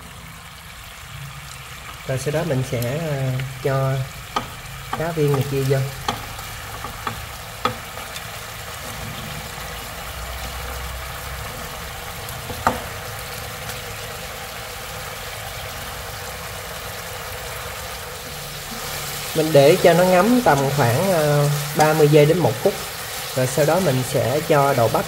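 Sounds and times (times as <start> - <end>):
glaze sizzling in a wok: 0.0 - 25.0
chopsticks knocking bowl and pan: 4.3 - 7.9.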